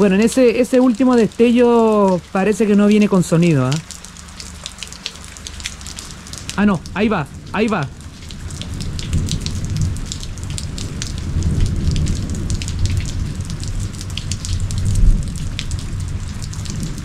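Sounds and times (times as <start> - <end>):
raindrops ticking: 0.0 - 17.0
steady rain: 0.0 - 17.0
distant thunder rumbling: 6.6 - 17.0.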